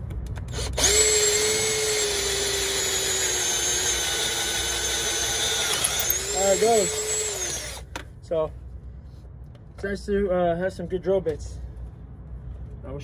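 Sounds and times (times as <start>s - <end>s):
cordless drill drilling steel: 0.5s - 7.8s.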